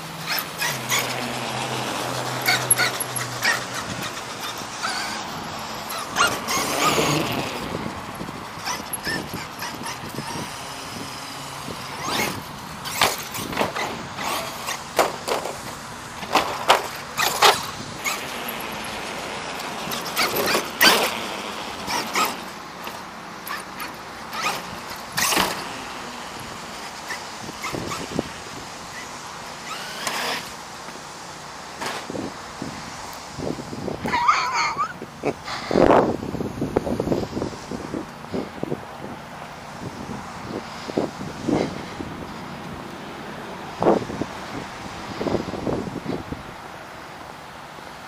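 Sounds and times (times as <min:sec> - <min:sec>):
electric motor whining: 0:00.2 - 0:30.6
toy truck clacking on ramps: 0:05.9 - 0:07.6, 0:12.0 - 0:18.8, 0:19.5 - 0:25.7, 0:29.6 - 0:30.6.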